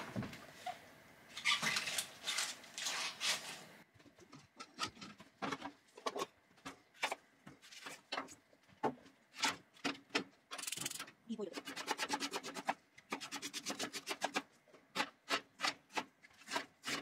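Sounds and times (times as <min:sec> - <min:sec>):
rustling and handling: 0:00.0 - 0:09.7.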